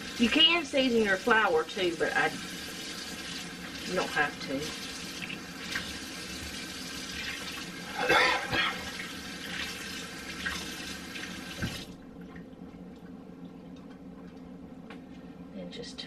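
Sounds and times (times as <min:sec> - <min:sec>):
tap running into sink: 0:11.5 - 0:11.9.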